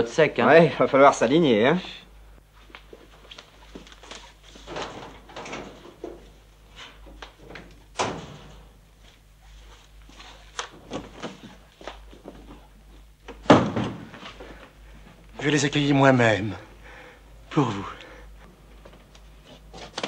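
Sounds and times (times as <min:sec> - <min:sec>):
locker door bang: 0:07.9 - 0:08.7, 0:13.4 - 0:14.1.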